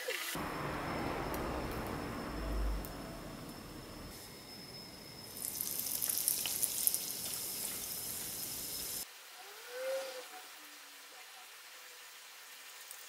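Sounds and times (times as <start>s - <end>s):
oil sizzling with crackles: 5.2s - 9.1s, 12.1s - 13.0s.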